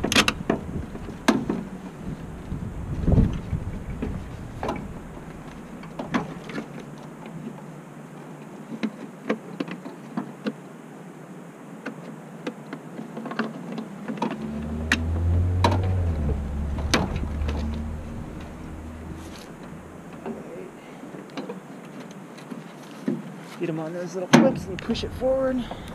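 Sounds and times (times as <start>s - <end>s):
vehicle passing by: 2.6s - 5.8s, 13.9s - 21.0s, 24.5s - 25.9s.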